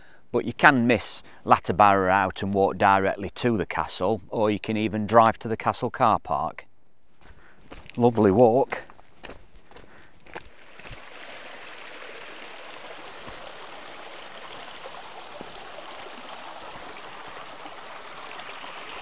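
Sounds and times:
stream babbling over rocks: 10.3 - 19.0.

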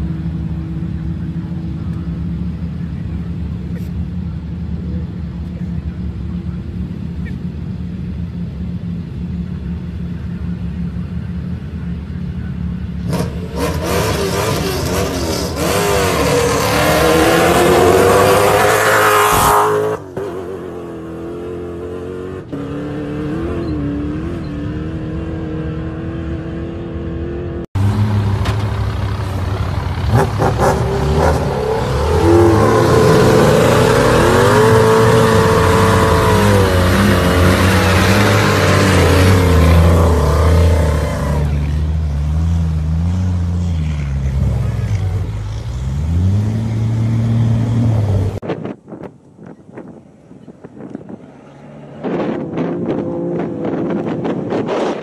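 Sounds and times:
rally car engine passing: 12.4 - 48.4
engines revving hard: 12.8 - 48.6, 50.8 - 55.0.

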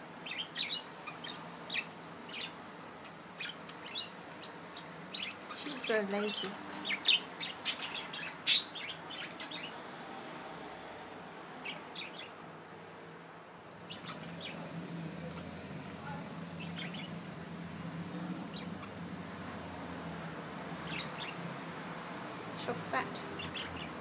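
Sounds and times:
budgerigars chirping: 0.2 - 9.8, 11.6 - 12.4, 13.8 - 14.8, 16.5 - 17.3, 18.0 - 19.2, 20.8 - 24.0.

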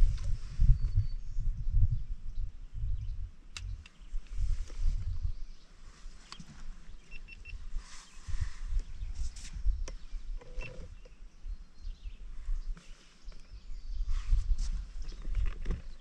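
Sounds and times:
faint high chirps: 7.0 - 8.2.

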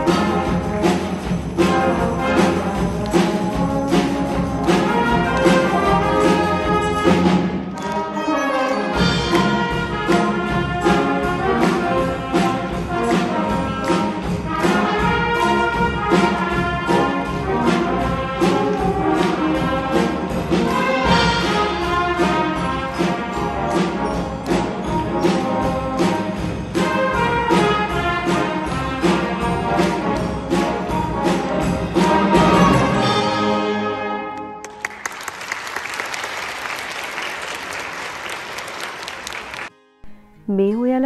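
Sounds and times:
percussion beat: 0.0 - 33.6
brass band playing: 0.0 - 35.2.

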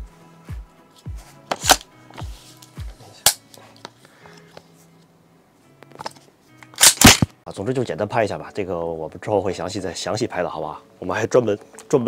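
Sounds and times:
background music with bass beat: 0.0 - 3.3
rifle action metallic clacks: 6.0 - 7.3.

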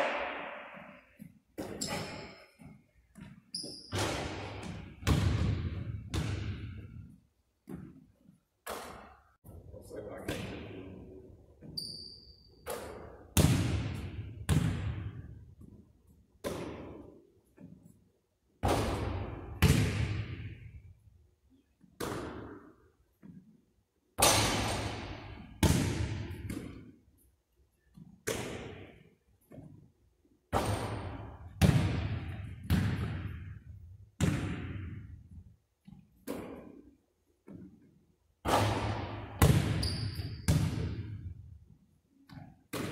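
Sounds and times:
basketball hitting court and hoop: 0.0 - 9.2, 12.6 - 15.7, 16.4 - 17.8, 18.6 - 20.8, 21.9 - 23.5, 24.2 - 27.0, 27.9 - 29.8, 30.5 - 37.8, 38.4 - 41.4, 42.3 - 42.9
basketball bouncing on hardwood floor: 1.6 - 6.8, 18.7 - 20.4, 31.6 - 33.5, 34.2 - 35.0, 39.0 - 41.1
brief high squeak: 1.8 - 2.5, 11.8 - 12.5.

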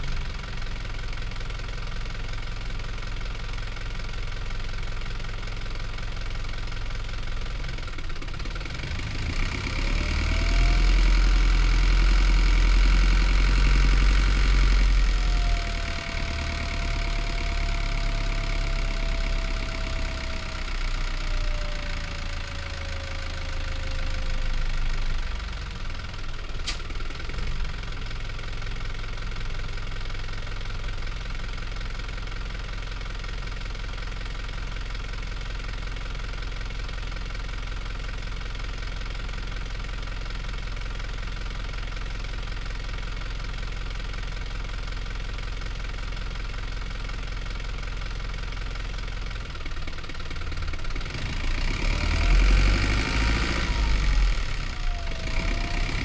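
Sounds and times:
bus diesel engine: 0.0 - 56.0
engine whine: 13.5 - 27.6, 51.0 - 56.0.

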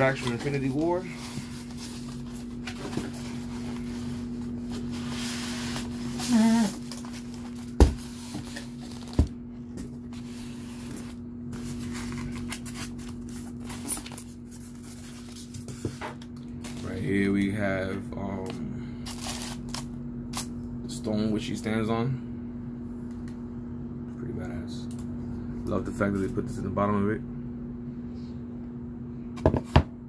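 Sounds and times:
cardboard and foam rustling: 0.0 - 9.4
steady low hum: 0.0 - 30.0.

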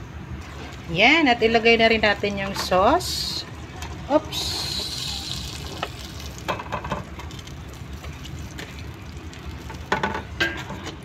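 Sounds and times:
meat sizzling in a pot: 4.3 - 11.0.

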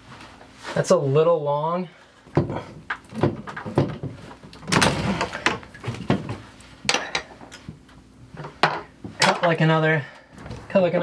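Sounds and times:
pipe clicks and knocks: 2.3 - 7.3.

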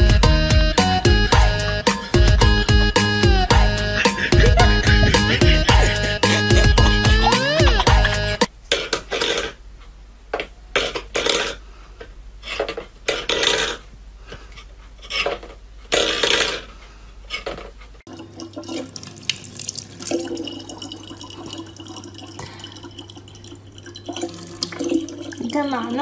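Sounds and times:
low steady hum: 18.1 - 26.0
tap water running into bottle: 18.1 - 26.0
metal bowl clattering: 18.2 - 26.0.

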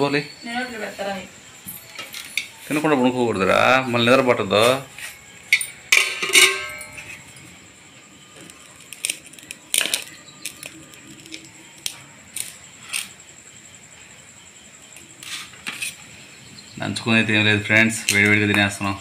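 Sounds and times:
metal plates and pot clinking: 4.6 - 7.4.

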